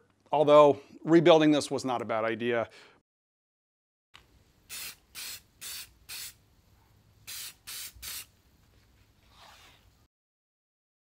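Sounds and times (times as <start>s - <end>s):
aerosol can spraying: 4.7s - 6.4s, 7.2s - 8.4s.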